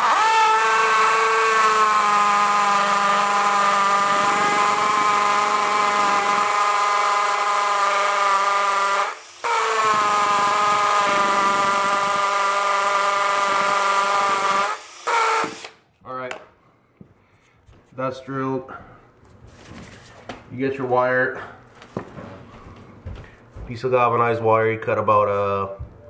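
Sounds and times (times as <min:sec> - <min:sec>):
cordless drill boring into concrete: 0:00.0 - 0:15.8.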